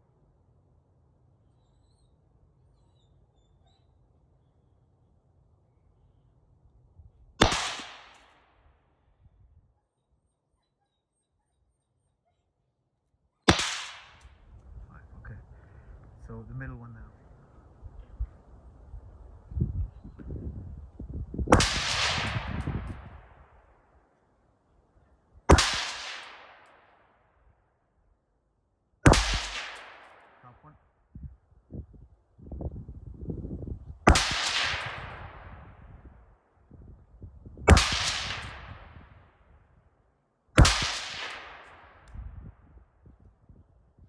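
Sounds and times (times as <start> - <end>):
gunshots with echo: 7.4 - 8.5, 13.5 - 14.2, 21.5 - 23.4, 25.5 - 27.0, 29.0 - 30.7, 34.1 - 35.5, 37.7 - 39.0, 40.6 - 42.1.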